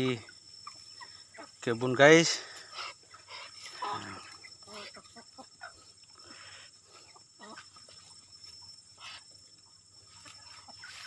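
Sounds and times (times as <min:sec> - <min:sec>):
steady high hiss: 0:00.0 - 0:05.2
chickens clucking: 0:00.0 - 0:11.0.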